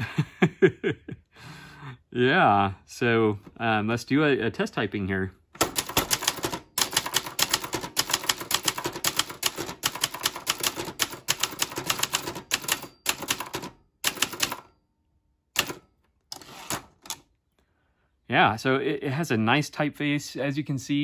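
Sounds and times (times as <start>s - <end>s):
typewriter carriage return rattling: 5.6s - 14.7s, 15.6s - 17.2s
typewriter keys striking: 5.6s - 14.7s, 15.6s - 17.2s.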